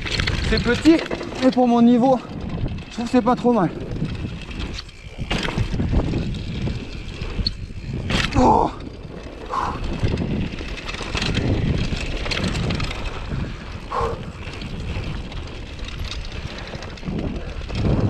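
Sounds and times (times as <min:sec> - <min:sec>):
rattles and knocks: 0:00.0 - 0:07.2
bike tyres rumbling on dirt: 0:00.0 - 0:18.0
wind rushing over microphone: 0:00.0 - 0:18.0.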